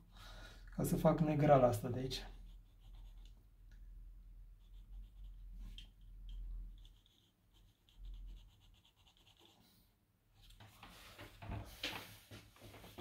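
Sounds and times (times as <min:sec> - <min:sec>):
pencil scratching on paper: 0:02.1 - 0:03.4, 0:04.5 - 0:09.9.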